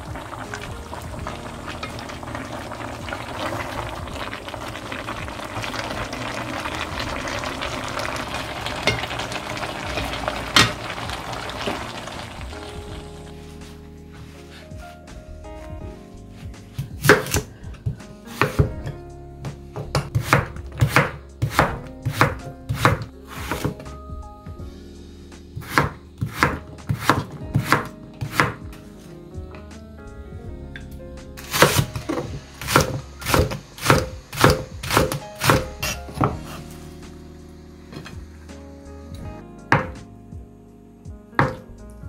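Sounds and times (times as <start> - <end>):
soft background music: 0.0 - 42.0
knife chopping on cutting board: 17.0 - 17.4, 19.8 - 23.8, 25.6 - 28.6, 39.7 - 40.0.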